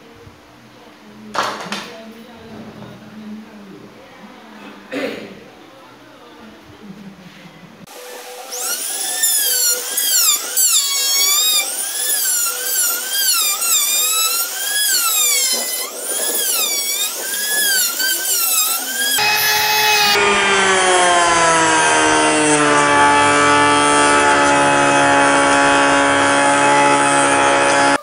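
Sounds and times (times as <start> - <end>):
trim router whining cutting wood: 7.9 - 28.0.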